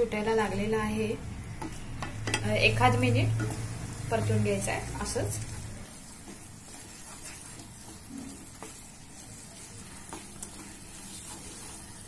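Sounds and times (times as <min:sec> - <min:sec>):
milk solids sizzling in a pan: 0:00.0 - 0:12.0
spatula tapping: 0:01.5 - 0:03.8, 0:06.2 - 0:12.0
wooden spatula scraping a pan: 0:01.6 - 0:12.0.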